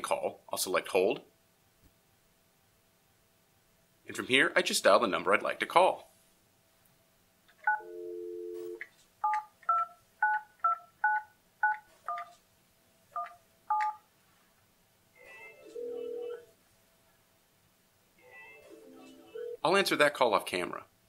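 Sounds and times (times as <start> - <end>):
dial tone: 7.7 - 8.8, 15.6 - 16.4
phone ringing tone: 7.7 - 8.8, 15.2 - 16.5, 18.2 - 19.7.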